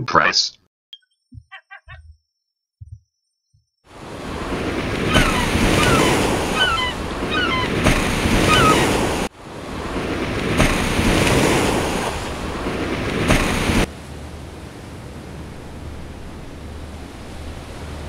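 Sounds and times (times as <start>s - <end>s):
ocean waves rushing: 3.9s - 18.0s.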